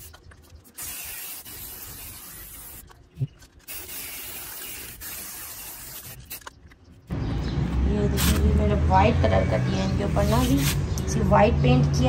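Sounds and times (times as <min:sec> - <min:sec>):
spray can hissing: 0:00.7 - 0:02.9, 0:03.6 - 0:06.5, 0:08.2 - 0:08.5, 0:10.2 - 0:10.8.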